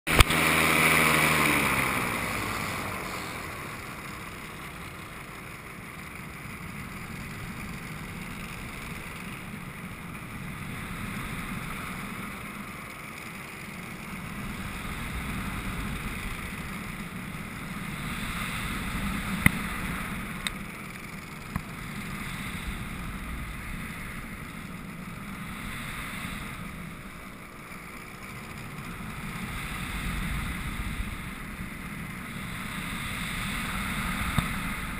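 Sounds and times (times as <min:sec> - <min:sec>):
two-stroke engine throttling back: 0:00.1 - 0:34.9
wind rushing over microphone: 0:06.3 - 0:34.9
sharp ticks: 0:19.0 - 0:22.1.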